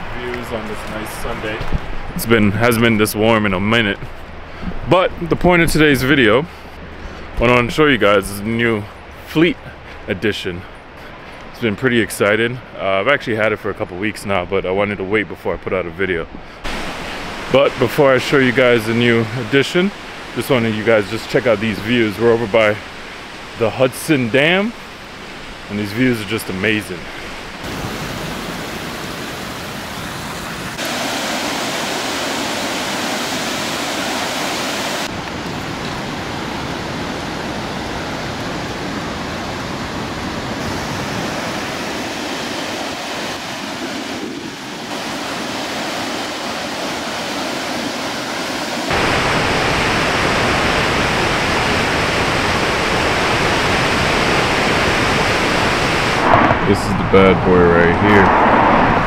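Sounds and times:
water rushing down spillway: 16.6s - 58.2s.

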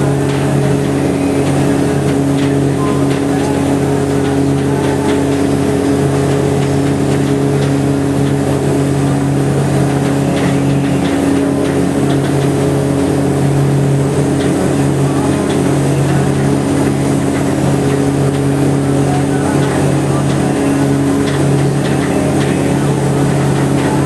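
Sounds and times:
ferry engine droning: 0.0s - 24.0s.

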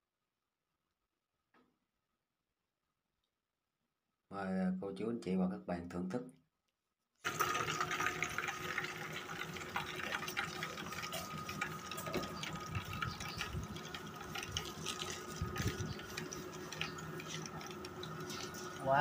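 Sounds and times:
chicken frying in hot oil: 7.2s - 19.0s.

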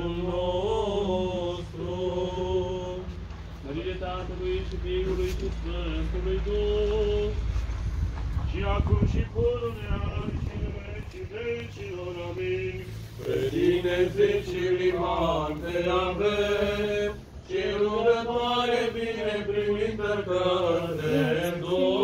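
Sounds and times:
voices chanting long notes: 11.8s - 22.0s.

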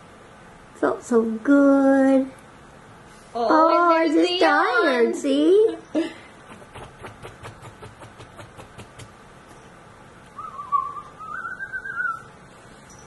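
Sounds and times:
person whistling: 10.4s - 12.3s.

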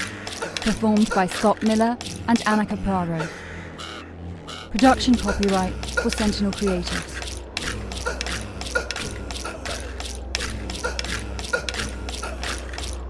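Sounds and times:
mechanical clicking and ratcheting: 0.0s - 2.6s, 5.1s - 13.0s
steady low hum: 0.0s - 13.0s.

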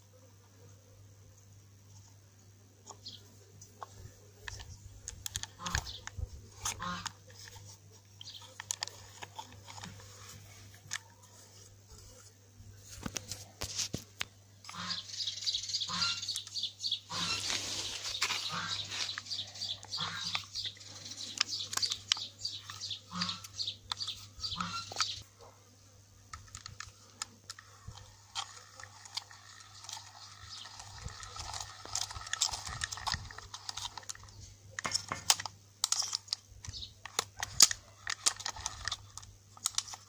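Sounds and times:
small birds chirping: 2.8s - 11.5s, 14.6s - 25.3s, 26.4s - 35.1s, 35.9s - 39.2s.

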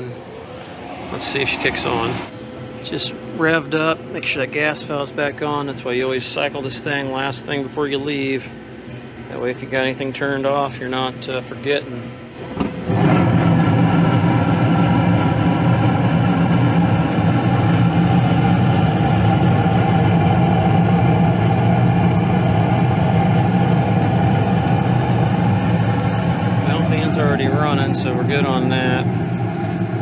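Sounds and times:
burners low rumble: 0.0s - 5.0s, 12.9s - 30.0s
gas burners igniting: 0.0s - 5.6s, 12.3s - 30.0s
draft inducer fan: 0.0s - 30.0s.

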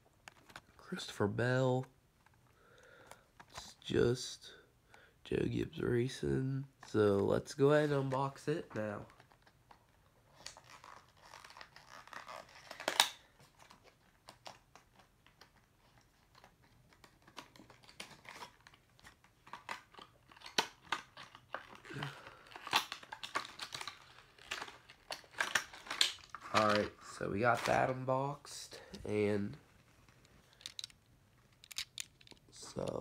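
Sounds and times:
packaging crinkling and tearing: 9.0s - 28.6s, 29.6s - 33.0s.

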